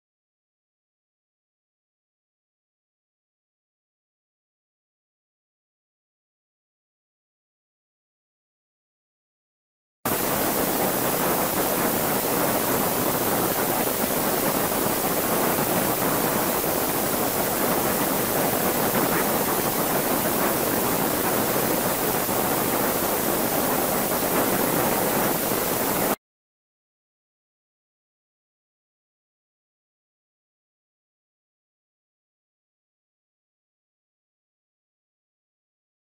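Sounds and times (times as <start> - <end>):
steady rushing hiss: 10.1 - 26.2.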